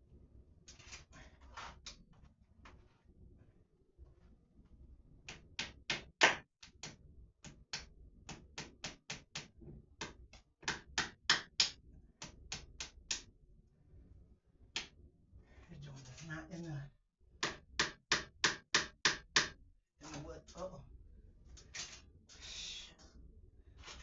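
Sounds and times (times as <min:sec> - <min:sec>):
hammer tapping wall: 0:05.3 - 0:13.2, 0:17.4 - 0:19.6.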